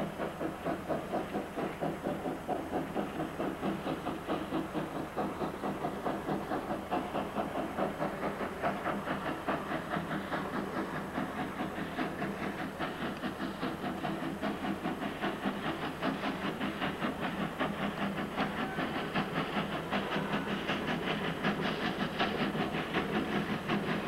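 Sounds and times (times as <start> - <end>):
steam hissing: 0.0 - 24.0
steam locomotive chuffing: 0.0 - 24.0.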